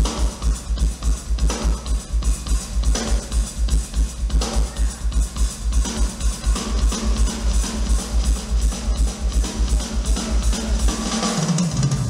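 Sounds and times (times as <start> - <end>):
live band music: 0.0 - 12.0.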